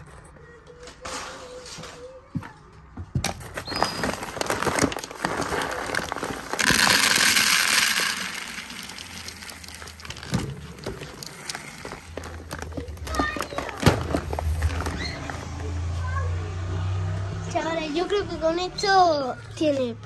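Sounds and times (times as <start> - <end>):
paper bag rustling: 3.4 - 15.6
pellets pouring into plastic bowl: 3.6 - 15.3.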